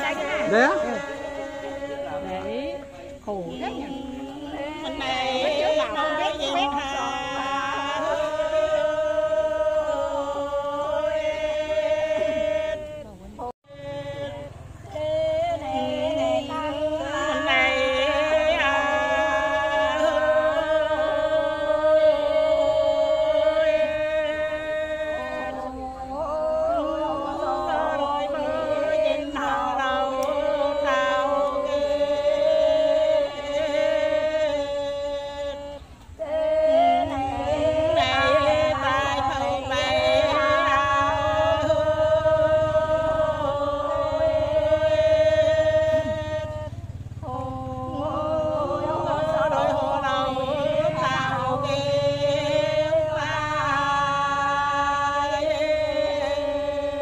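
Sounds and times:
steadily held drone note: 0.0s - 57.0s
voices chanting together: 0.0s - 57.0s.

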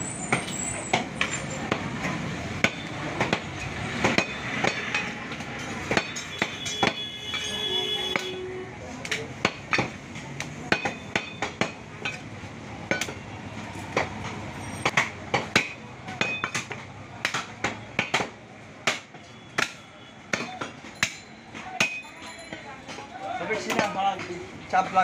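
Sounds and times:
knife chopping meat on wood block: 14.9s - 21.2s.

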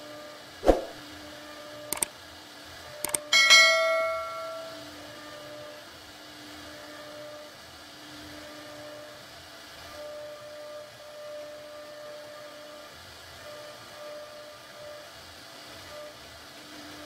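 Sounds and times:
mouse clicks: 3.0s - 3.2s
bright bell ding: 3.4s - 4.9s.

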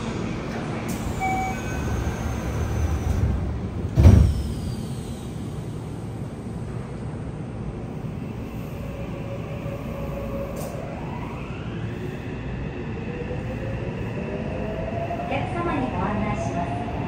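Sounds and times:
train inverter whine rising: 7.8s - 16.1s.

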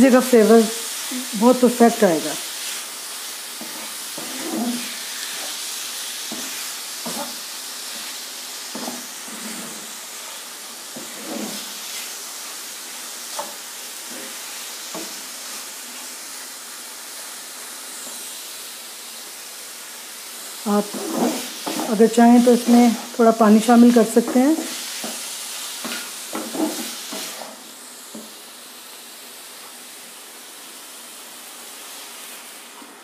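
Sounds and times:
chicken sizzling in oil: 0.0s - 33.0s
wooden spatula scraping pan: 3.6s - 5.6s, 6.3s - 8.1s, 8.7s - 10.0s, 10.9s - 12.1s, 20.7s - 23.2s, 25.8s - 27.6s.

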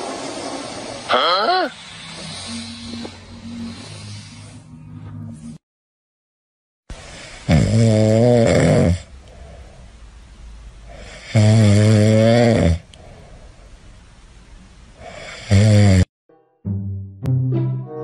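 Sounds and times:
cat snoring: 0.0s - 4.6s, 7.1s - 9.1s, 10.9s - 12.8s, 15.0s - 16.1s.

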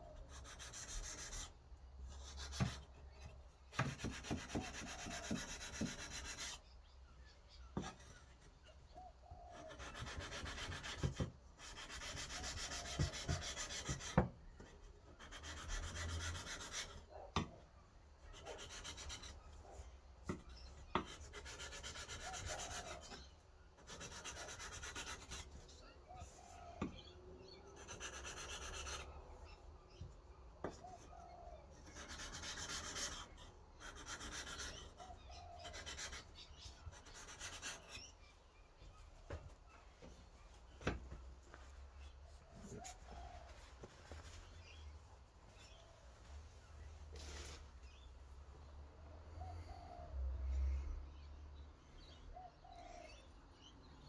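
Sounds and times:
knife scraping on sandpaper: 21.1s - 23.2s.

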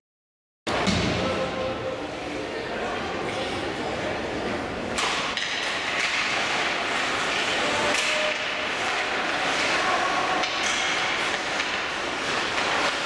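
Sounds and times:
hockey sticks clacking: 4.9s - 13.0s
puck crack: 5.0s - 13.0s
skate blades scraping ice: 5.6s - 13.0s.

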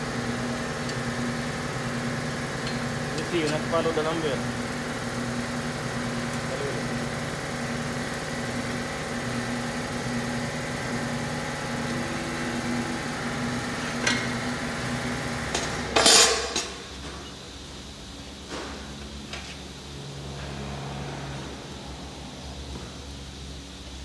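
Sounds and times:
steady machine hum: 0.0s - 24.0s
metal tools clanking on engine: 2.6s - 4.2s, 15.6s - 16.8s.

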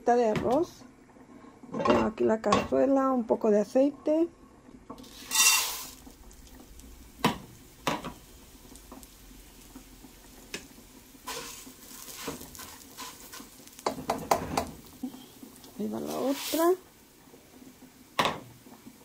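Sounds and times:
rice stirred and scraped: 5.0s - 6.0s, 11.2s - 16.8s
rice pouring into pot: 5.0s - 17.8s
spoon knocking on pot: 13.8s - 14.8s.

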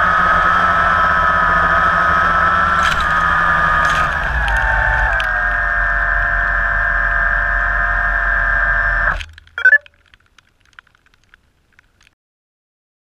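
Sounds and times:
quadcopter propellers whirring: 0.0s - 9.2s
faint ticks: 9.2s - 12.2s.

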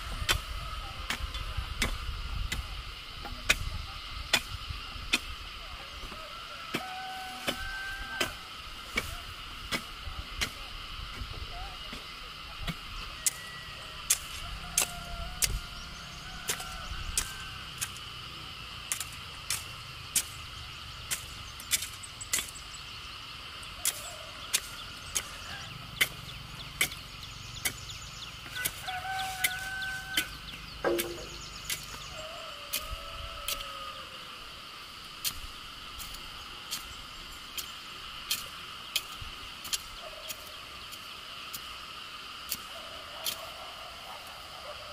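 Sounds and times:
high insect drone: 0.0s - 44.9s
roosters crowing: 6.0s - 9.4s, 13.1s - 18.2s, 23.5s - 26.9s, 27.6s - 35.0s, 42.7s - 44.9s
hoe chopping into dry soil: 27.6s - 32.0s.

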